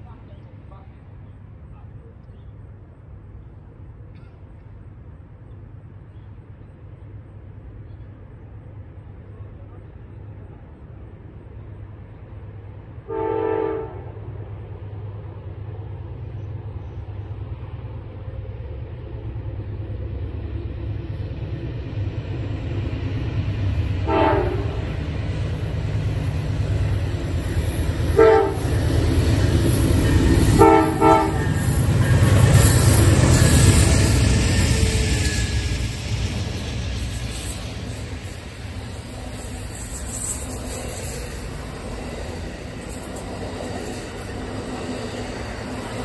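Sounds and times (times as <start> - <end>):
train engines and wheels rumbling: 0.0 - 46.0
train horn blasts: 13.0 - 14.4, 24.0 - 25.0, 28.1 - 28.8, 30.4 - 32.4.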